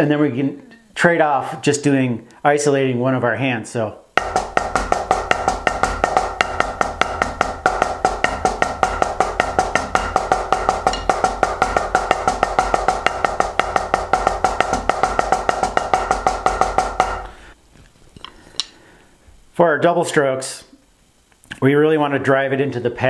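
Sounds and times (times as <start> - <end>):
drumsticks on practice pad: 4.2 - 17.6.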